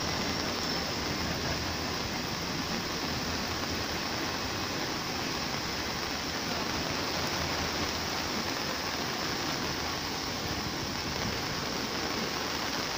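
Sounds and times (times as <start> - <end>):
rain and wind: 0.0 - 12.9.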